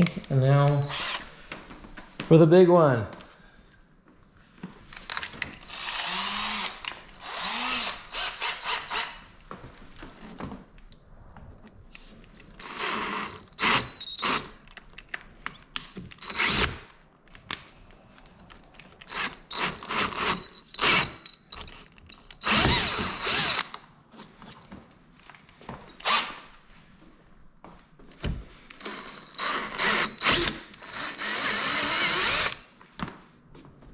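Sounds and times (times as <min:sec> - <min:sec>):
cordless drill bursts: 0:00.7 - 0:01.3, 0:05.6 - 0:09.2, 0:12.6 - 0:14.6, 0:16.2 - 0:16.8, 0:19.1 - 0:21.7, 0:22.3 - 0:23.7, 0:26.0 - 0:26.4, 0:28.8 - 0:32.6.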